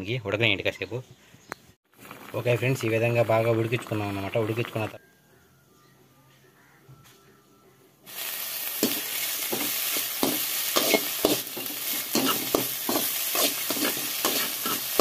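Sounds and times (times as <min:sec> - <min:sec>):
figs sizzling in oil: 0:01.9 - 0:05.0, 0:08.1 - 0:15.0
metal spatula scraping pan: 0:08.8 - 0:15.0.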